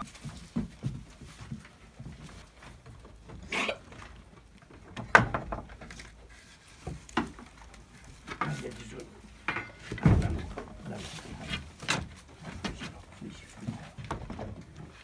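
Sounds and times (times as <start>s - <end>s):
goats knocking wooden boards: 0.0s - 15.0s
rustling: 0.0s - 15.0s
noisy scuffle: 6.0s - 15.0s.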